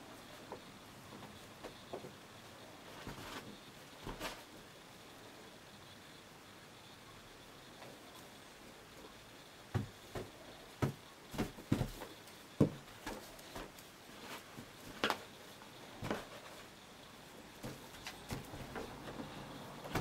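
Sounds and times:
balloon knocks and bumps: 9.7 - 13.7.

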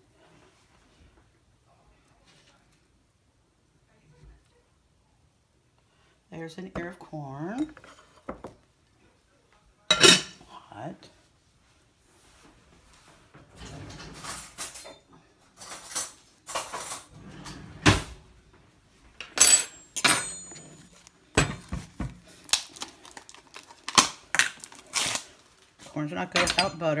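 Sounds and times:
dishes and cutlery clattering: 9.9 - 10.5, 13.5 - 18.1, 19.2 - 22.1, 26.3 - 27.0.

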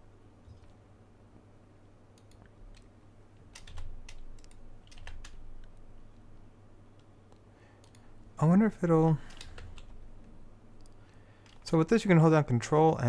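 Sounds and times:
steady low hum: 0.0 - 13.0
keyboard keys clicking: 3.5 - 5.8.

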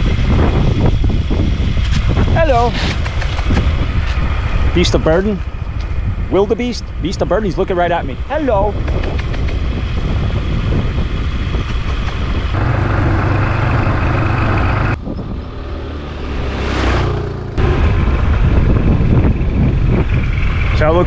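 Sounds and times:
wind noise: 0.0 - 21.0
scooter engine rumble: 8.9 - 20.8.

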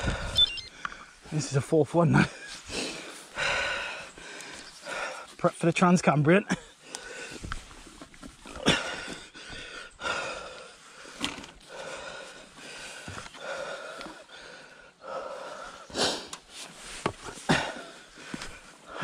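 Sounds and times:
man breathing hard: 0.0 - 1.1, 2.4 - 5.4, 6.8 - 7.8, 8.5 - 19.0.

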